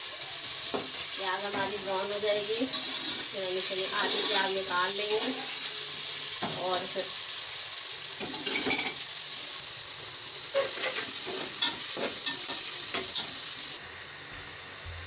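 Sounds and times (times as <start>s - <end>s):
onions sizzling in oil: 0.0s - 15.0s
metal spoon scraping a pot: 2.7s - 3.3s, 10.5s - 12.6s.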